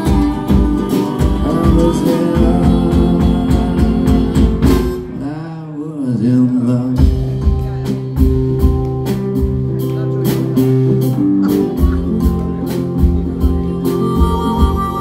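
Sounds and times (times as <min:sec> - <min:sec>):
drum kit: 0:00.0 - 0:05.4, 0:06.8 - 0:15.0
person singing: 0:00.0 - 0:07.8, 0:11.4 - 0:15.0
acoustic guitar: 0:00.0 - 0:15.0.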